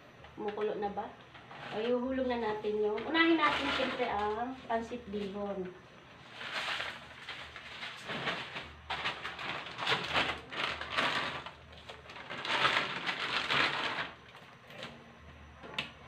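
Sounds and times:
plastic packaging crinkling: 0:02.9 - 0:04.6, 0:06.2 - 0:15.0.

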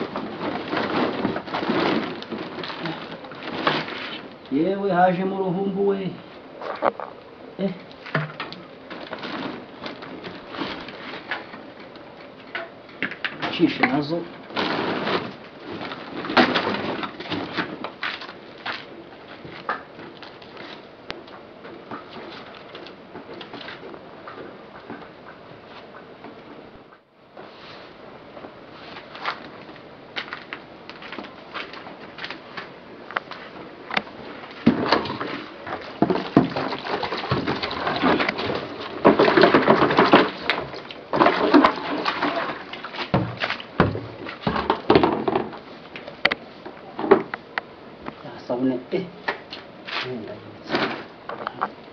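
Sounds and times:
plastic bag crinkling: 0:00.0 - 0:04.6, 0:06.6 - 0:12.4, 0:13.5 - 0:20.8
plastic containers knocking and scraping: 0:00.0 - 0:04.6, 0:06.6 - 0:26.3, 0:28.9 - 0:48.2, 0:49.2 - 0:51.8
cloth rustling: 0:08.6 - 0:12.2, 0:14.5 - 0:19.4.

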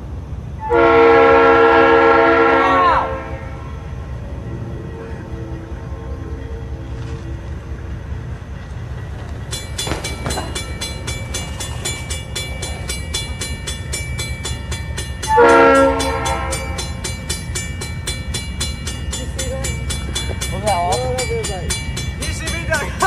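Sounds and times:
locomotive engine rumbling: 0:00.0 - 0:23.0
locomotive air horn blast: 0:00.6 - 0:03.7, 0:15.2 - 0:16.8
fast metallic ringing ticks: 0:09.5 - 0:23.0.

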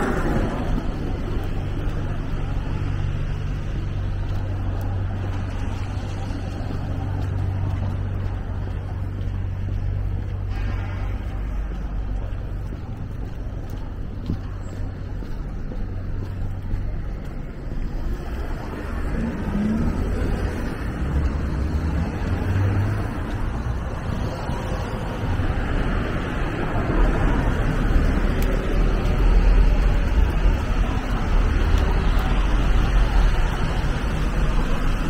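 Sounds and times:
tyres hissing on wet road: 0:00.0 - 0:07.7, 0:17.9 - 0:35.0
engines rumbling: 0:00.0 - 0:35.0.

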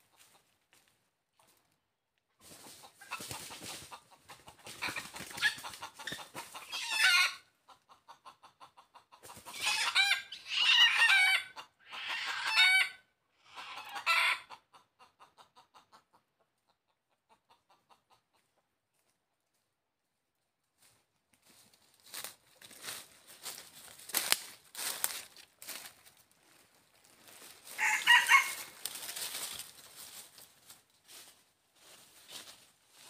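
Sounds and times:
chicken clucking and calling: 0:00.0 - 0:01.8, 0:02.4 - 0:19.6, 0:20.9 - 0:33.0
dry leaves crackling underfoot: 0:20.8 - 0:33.0.

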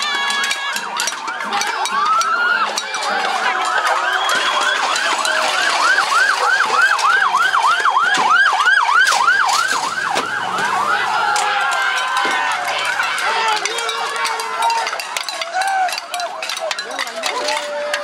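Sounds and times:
siren yelping: 0:00.6 - 0:13.2
wavering siren tones: 0:00.8 - 0:13.2.

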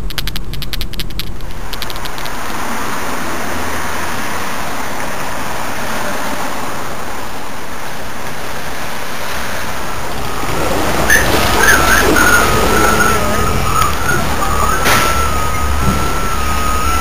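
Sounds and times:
street traffic hiss: 0:00.0 - 0:17.0
high wavering tone: 0:11.0 - 0:17.0.

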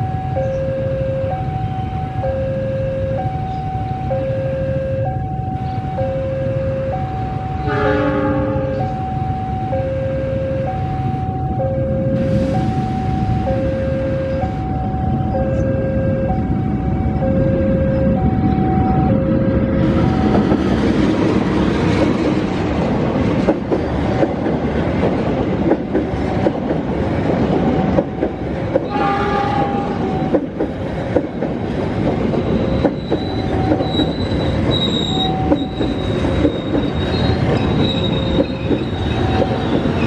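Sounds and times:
freight train rumbling past: 0:00.0 - 0:40.0
wheels clattering over rail joints: 0:20.1 - 0:40.0
high wheel squeal: 0:32.4 - 0:40.0.

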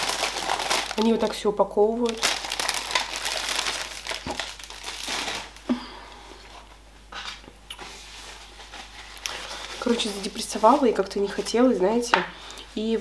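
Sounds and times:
plastic bag crinkling: 0:00.0 - 0:05.8, 0:08.2 - 0:11.8.

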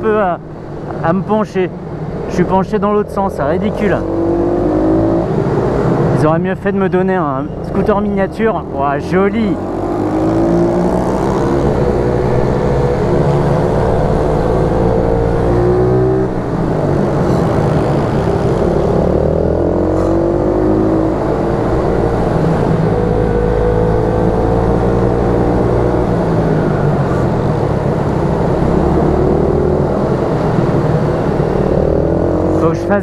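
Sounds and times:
motorbike engine revving: 0:03.3 - 0:05.4, 0:09.0 - 0:33.0.

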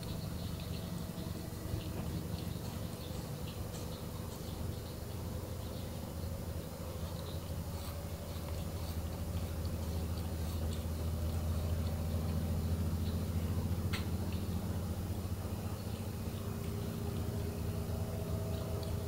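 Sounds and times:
cat purring: 0:06.4 - 0:19.0
cat tongue licking clicks: 0:06.8 - 0:19.0.

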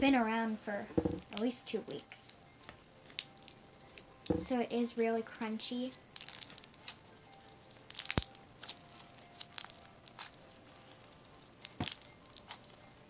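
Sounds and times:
crunchy slime crackles and pops: 0:03.1 - 0:04.0, 0:06.0 - 0:12.9.

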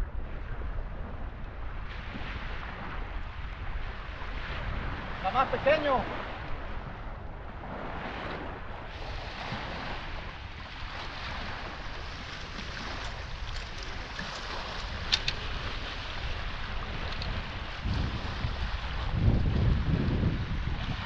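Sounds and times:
waves washing onto shore: 0:00.0 - 0:21.0
wind buffeting microphone: 0:00.0 - 0:21.0.

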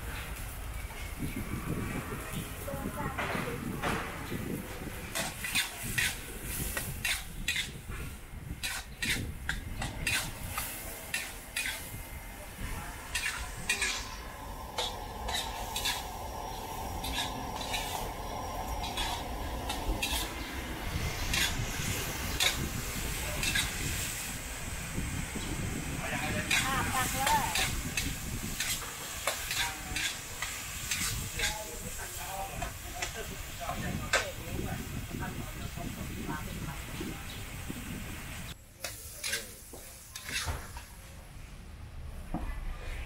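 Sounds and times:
food sizzling in a pan: 0:04.6 - 0:40.6
metal ladle scraping a wok: 0:05.1 - 0:12.1, 0:13.0 - 0:24.3, 0:26.4 - 0:31.7, 0:38.8 - 0:40.5.

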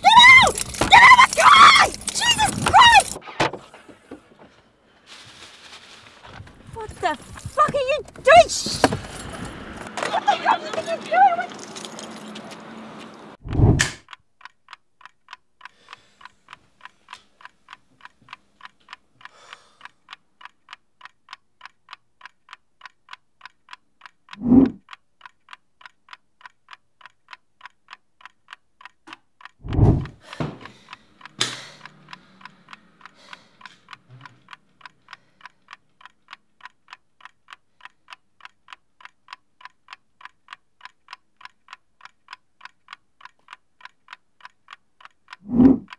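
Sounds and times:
chess clock ticking: 0:00.0 - 0:03.2, 0:06.8 - 0:08.5, 0:13.6 - 0:45.9
heavy low thumps: 0:13.4 - 0:13.9, 0:29.6 - 0:30.2.

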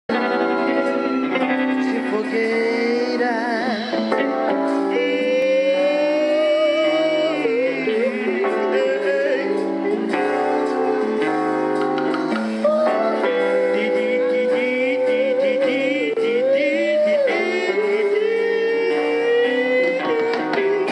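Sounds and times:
live band playing: 0:00.1 - 0:20.9
singer holding wavering notes: 0:12.6 - 0:20.9.

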